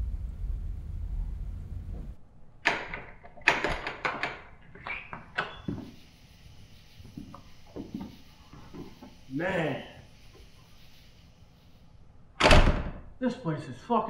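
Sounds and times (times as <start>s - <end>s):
door lock clicks and knocks: 2.6s - 4.4s.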